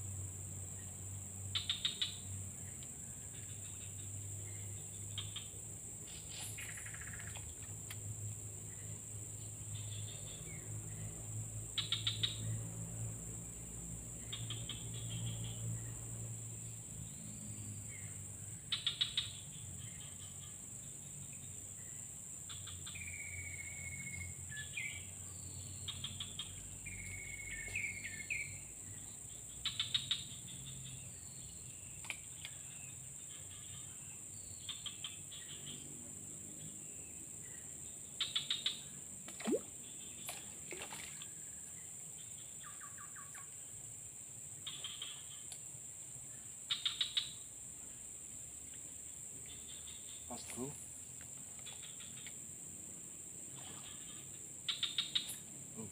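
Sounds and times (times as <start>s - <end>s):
rapid chirp trills: 53.8s - 55.9s.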